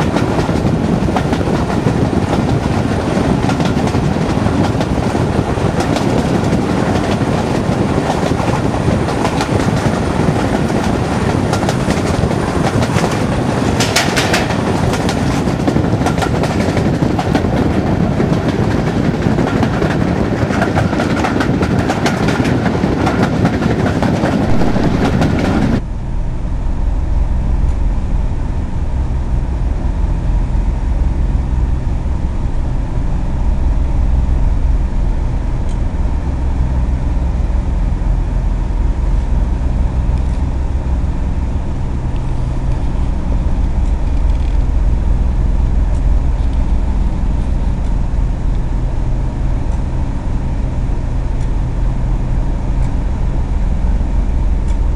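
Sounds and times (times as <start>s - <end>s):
train wheels on rails: 0.0s - 25.8s
diesel locomotive engine drone: 0.0s - 54.9s.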